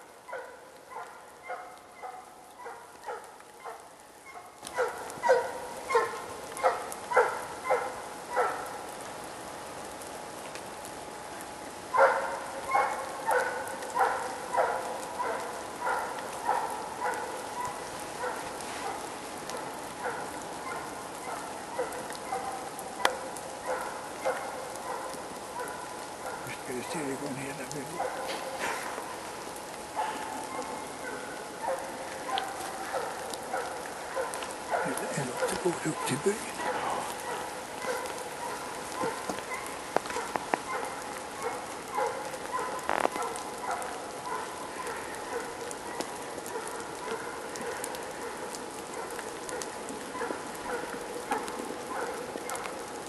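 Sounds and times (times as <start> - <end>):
hound baying: 0.3 - 8.8, 11.9 - 29.2, 29.9 - 52.8.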